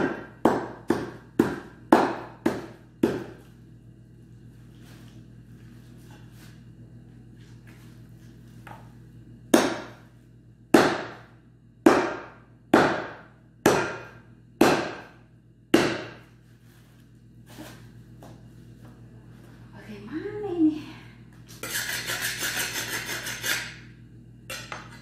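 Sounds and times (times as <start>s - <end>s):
cleaver chopping meat and bone: 0.0s - 3.4s, 9.5s - 10.0s, 10.7s - 16.2s.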